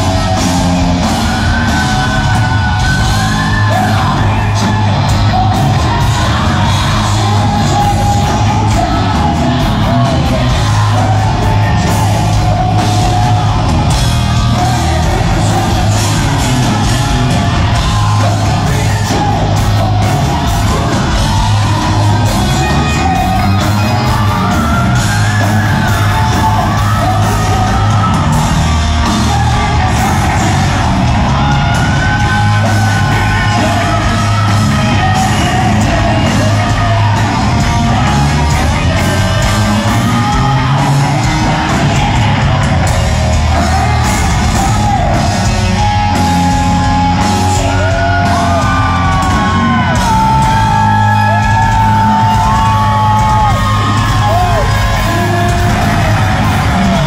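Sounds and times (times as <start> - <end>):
bass guitar: 0.0 - 57.0
distorted electric guitar: 0.0 - 57.0
drum kit: 0.0 - 57.0
person singing: 0.0 - 57.0.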